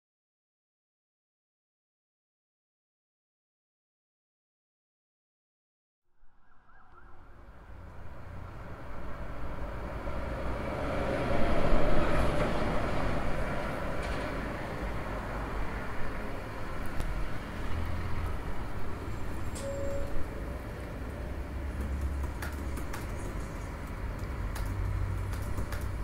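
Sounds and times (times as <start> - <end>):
road traffic rushing: 6.7 - 26.0.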